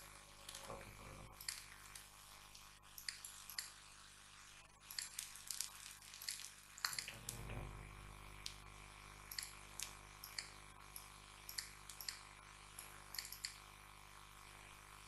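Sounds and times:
low electrical hum: 0:00.0 - 0:15.0
computer mouse clicking: 0:01.4 - 0:03.8, 0:04.9 - 0:07.4, 0:09.3 - 0:12.2, 0:12.8 - 0:13.6.

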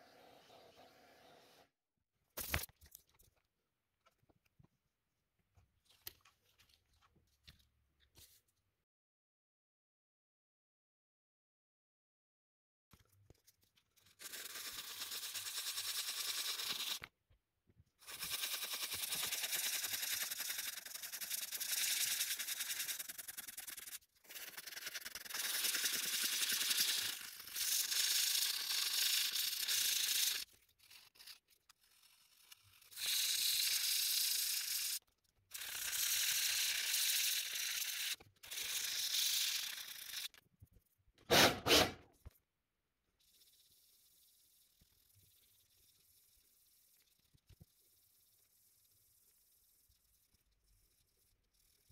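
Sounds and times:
sandpaper scratching plastic: 0:18.0 - 0:40.4.

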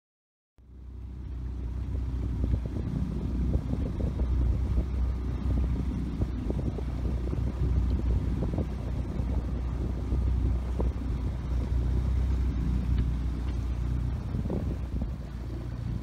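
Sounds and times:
outboard motor running: 0:00.6 - 0:16.0
water rushing past hull: 0:00.6 - 0:16.0
wind buffeting microphone: 0:00.9 - 0:16.0.

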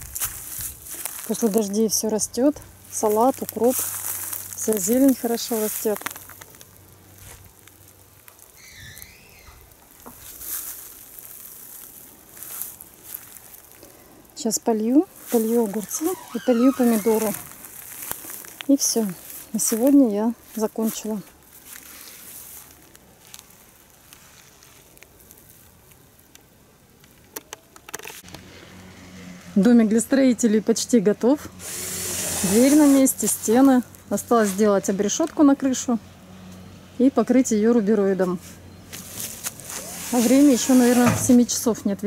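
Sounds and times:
footsteps on dry straw: 0:00.0 - 0:08.5, 0:09.6 - 0:14.1, 0:15.1 - 0:25.9, 0:31.7 - 0:35.0, 0:38.3 - 0:41.6.

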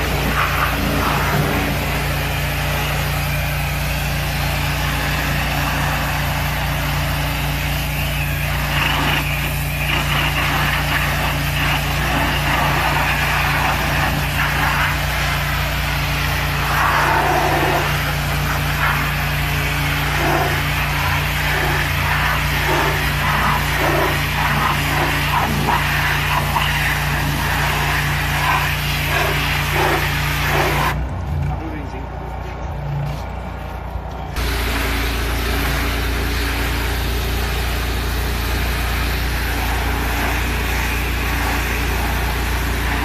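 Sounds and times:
uneven shifting noise: 0:00.0 - 0:43.0
motor humming: 0:34.1 - 0:43.0.

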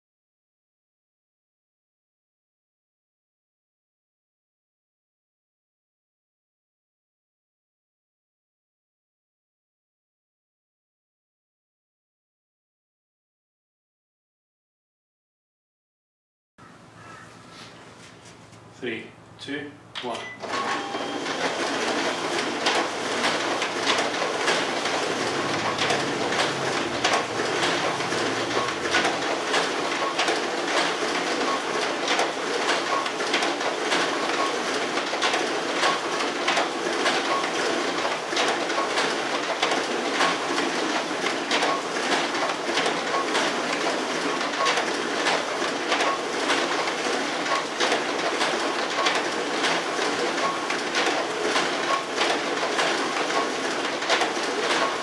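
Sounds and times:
document feeder whirring: 0:19.9 - 0:55.0.

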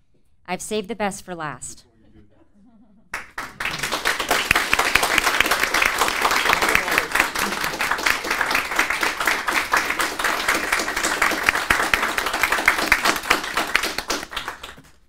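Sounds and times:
audience applauding: 0:03.1 - 0:15.0.

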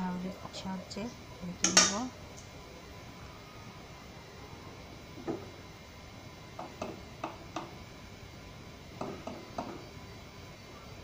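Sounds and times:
utensils knocking on metal cookware: 0:01.6 - 0:02.1, 0:09.0 - 0:09.8.

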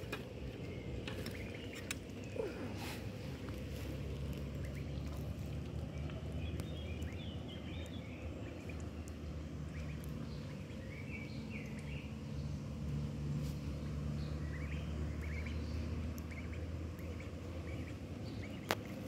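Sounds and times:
bird chirps: 0:05.8 - 0:12.8, 0:13.5 - 0:19.0.

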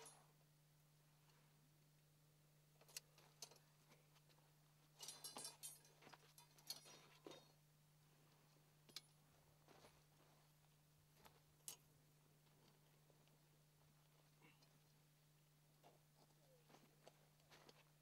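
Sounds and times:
faint steady hum: 0:00.0 - 0:18.0
tent poles clicking and clinking: 0:02.8 - 0:04.4, 0:05.0 - 0:07.6, 0:11.6 - 0:11.9.

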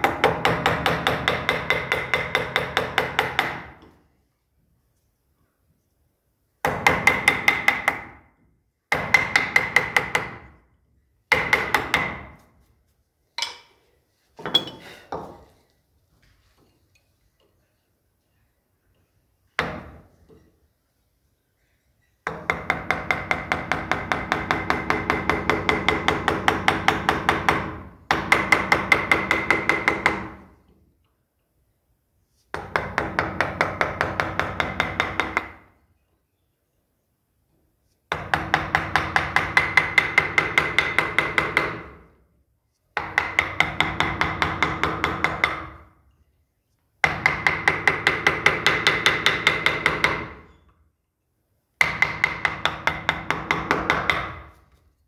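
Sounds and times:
mallet tapping chisel into wood: 0:51.8 - 0:54.5.

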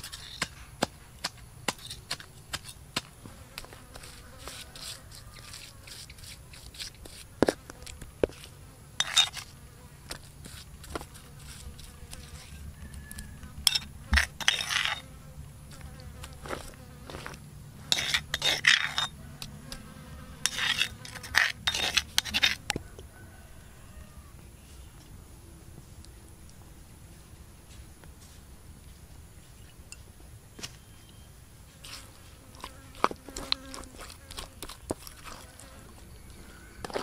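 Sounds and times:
faint steady buzz: 0:00.0 - 0:37.0
metal spoon clicking and scraping: 0:12.1 - 0:15.0, 0:17.9 - 0:19.2, 0:20.5 - 0:22.8.

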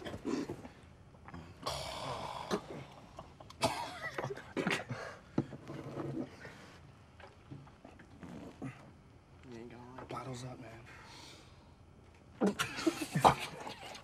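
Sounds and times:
men coughing and gagging: 0:03.6 - 0:04.9, 0:12.4 - 0:13.7.

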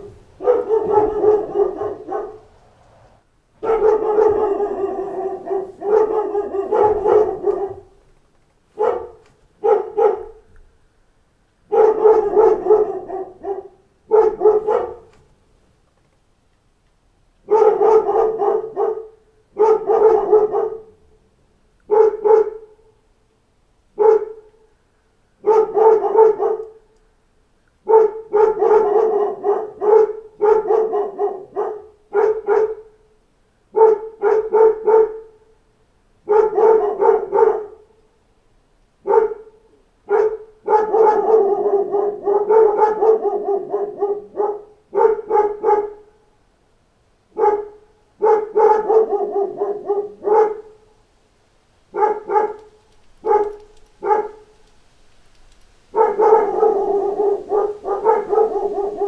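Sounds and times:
dogs barking: 0:00.0 - 0:02.6, 0:03.6 - 0:08.0, 0:08.7 - 0:10.5, 0:11.7 - 0:15.2, 0:17.4 - 0:21.1, 0:21.9 - 0:22.8, 0:24.0 - 0:24.6, 0:25.4 - 0:26.9, 0:27.8 - 0:33.0, 0:33.7 - 0:35.4, 0:36.2 - 0:38.0, 0:39.0 - 0:46.2, 0:47.3 - 0:50.9, 0:51.9 - 0:54.7, 0:55.9 - 0:59.0.

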